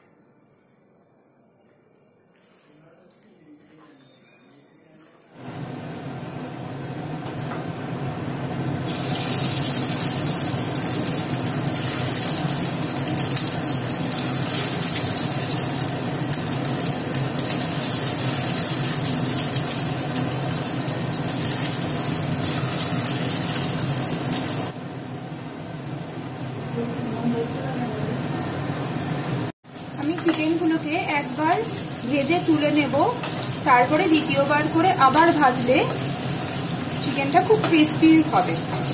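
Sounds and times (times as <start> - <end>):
oil sizzling: 8.6 - 27.5, 28.1 - 38.9.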